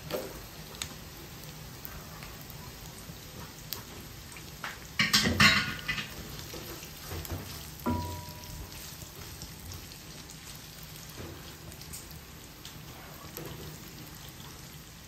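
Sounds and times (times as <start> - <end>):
onion sizzling in oil: 0.0 - 15.0
spatula stirring in wok: 4.9 - 11.6.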